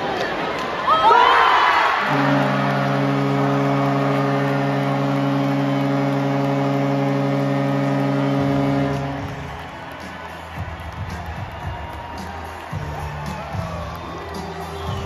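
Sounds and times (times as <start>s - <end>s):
goal horn low blast: 2.0s - 11.5s.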